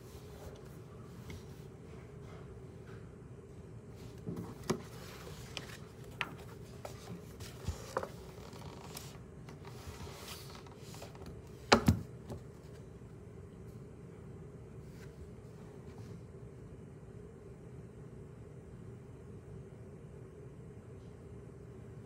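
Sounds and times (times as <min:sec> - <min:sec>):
paper rustling: 0:04.3 - 0:11.4.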